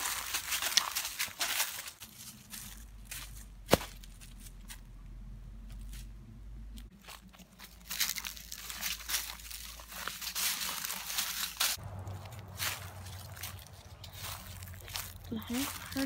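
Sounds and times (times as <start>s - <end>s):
footsteps crunching dry leaves: 0.0s - 4.8s, 6.9s - 16.0s.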